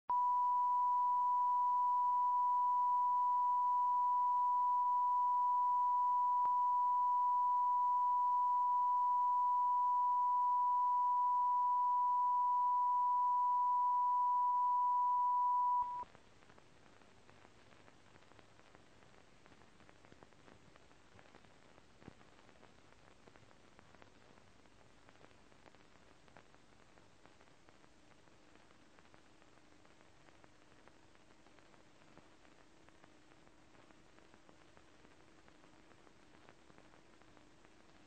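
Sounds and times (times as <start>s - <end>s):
steady line-up tone: 0.1s - 16.0s
faint hiss: 0.2s - 38.0s.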